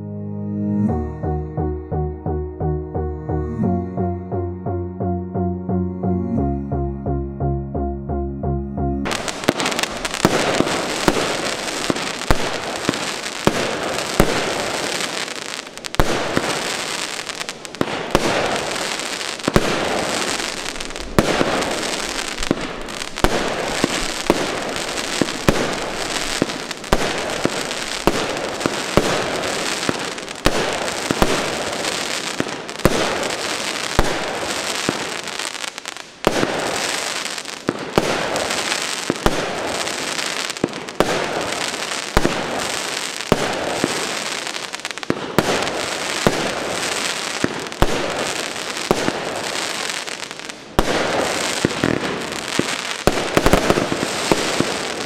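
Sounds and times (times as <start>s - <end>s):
firework launch and burst reports: 9.1s - 35.3s
firework crackling: 9.1s - 55.0s.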